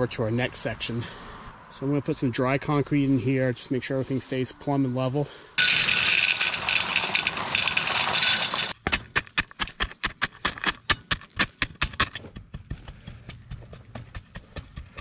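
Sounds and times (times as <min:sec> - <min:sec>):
dry concrete mix pouring: 0:05.6 - 0:08.8.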